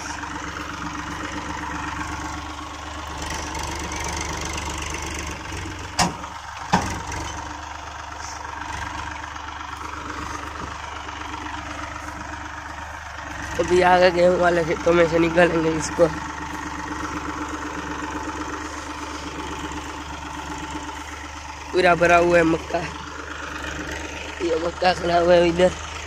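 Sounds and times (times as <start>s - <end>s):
diesel tractor engine running: 0.0s - 26.0s
sharp knocks: 6.0s - 7.0s.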